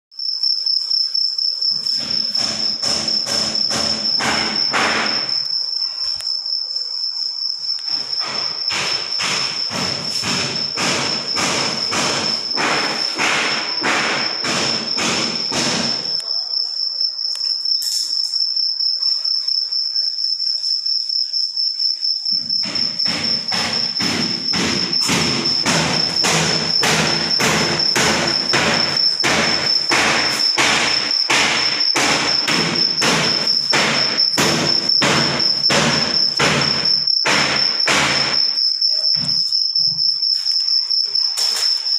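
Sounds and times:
shrill insect trill: 0.1 - 41.9
sharp knocks: 1.7 - 5.4, 7.9 - 16.2, 22.3 - 38.6.

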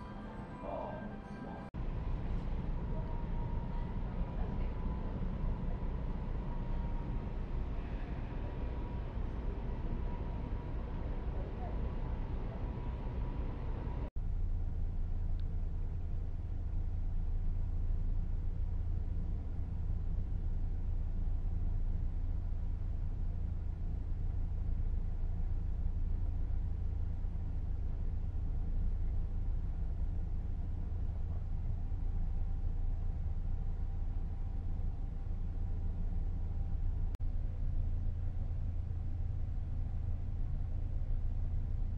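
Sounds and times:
faint high steady hum: 0.0 - 41.9
low drone of ship engines: 0.0 - 41.9.

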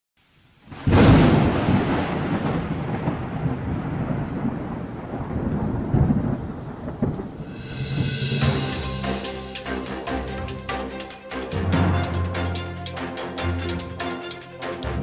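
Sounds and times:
steady rain: 0.2 - 15.0
rolling thunder: 0.7 - 9.3
thunderclap: 0.7 - 9.4
music: 7.5 - 15.0.

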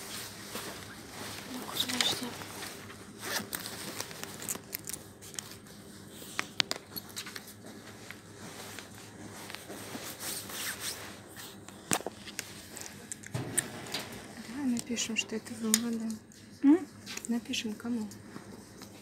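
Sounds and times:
paper rustling: 0.5 - 5.8.

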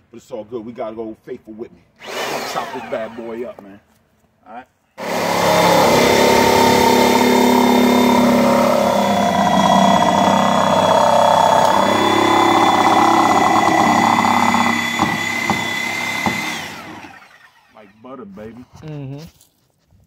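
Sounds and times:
reciprocating saw cutting wood: 2.0 - 3.5, 5.0 - 17.8
saw blade knocking in wood: 9.0 - 17.1.

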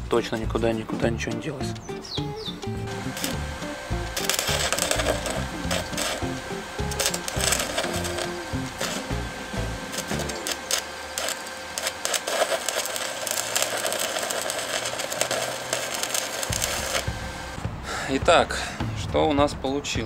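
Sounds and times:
sharp welding pops: 1.8 - 17.6
welding arc crackling and sizzling: 2.0 - 17.6.

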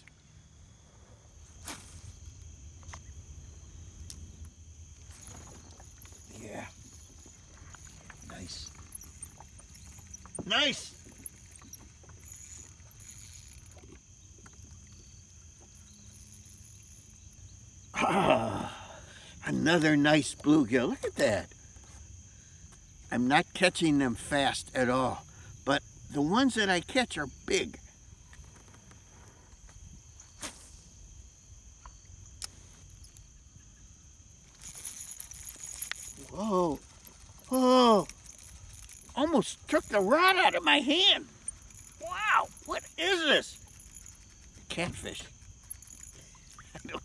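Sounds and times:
rustle: 0.0 - 18.6, 28.2 - 40.1
thin steady high tone: 5.1 - 13.8, 33.0 - 47.0.

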